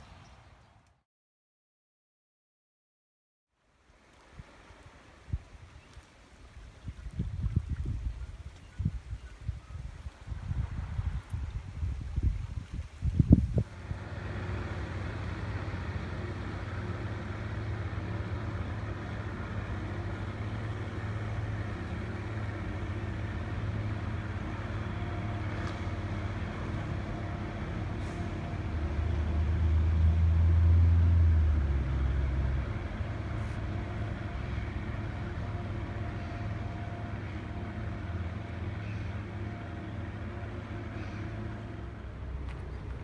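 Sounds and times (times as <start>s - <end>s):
motorboat engine humming: 13.4s - 43.0s.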